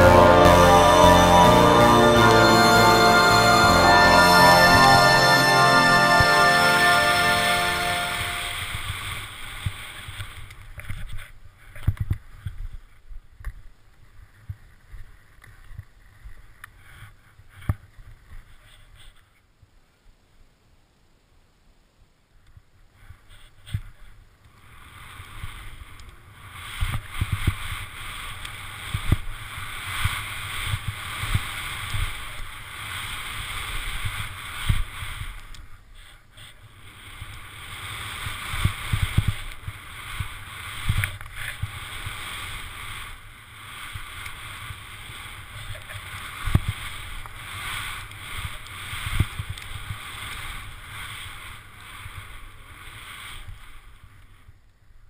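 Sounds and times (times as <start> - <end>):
skis hissing through snow: 0.0 - 10.4, 24.6 - 54.5.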